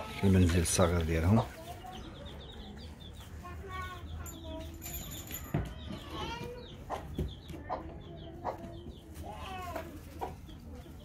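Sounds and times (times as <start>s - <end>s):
chickens clucking: 5.6s - 11.0s.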